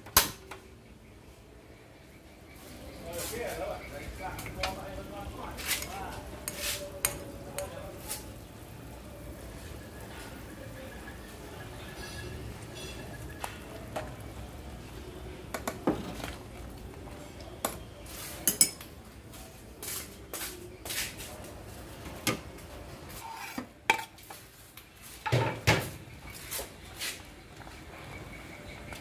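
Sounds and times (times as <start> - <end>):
cutlery and dishes clinking: 17.6 - 18.9, 23.2 - 24.4.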